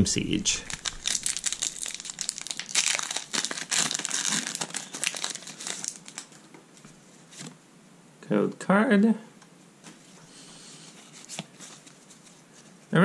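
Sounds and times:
foil wrapper tearing and crinkling: 0:00.6 - 0:06.4.

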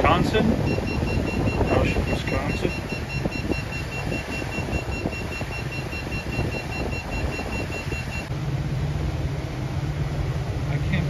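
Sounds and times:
wind buffeting microphone: 0:00.0 - 0:10.7
boat engine running: 0:00.0 - 0:11.0
rapid high-pitched electronic beeping: 0:00.1 - 0:08.3.

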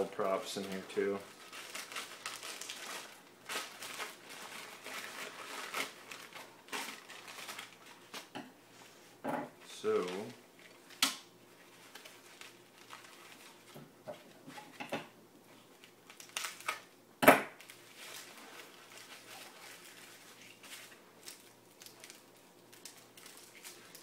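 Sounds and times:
foam wrap rustling: 0:00.0 - 0:09.0, 0:09.8 - 0:14.8, 0:15.6 - 0:16.9, 0:17.6 - 0:24.0
tape ripping: 0:00.6 - 0:08.3, 0:16.1 - 0:16.9.

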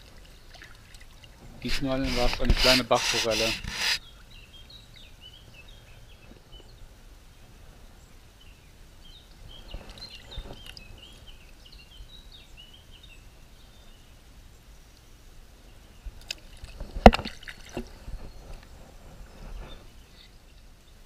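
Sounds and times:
river flowing: 0:00.0 - 0:04.3
small birds chirping: 0:00.0 - 0:16.7.

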